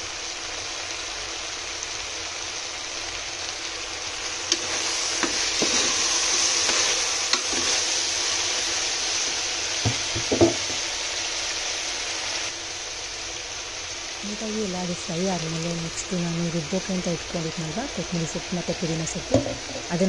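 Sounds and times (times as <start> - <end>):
vegetables sizzling in oil: 0.0 - 20.0
ladle knocking against pot: 9.9 - 10.8.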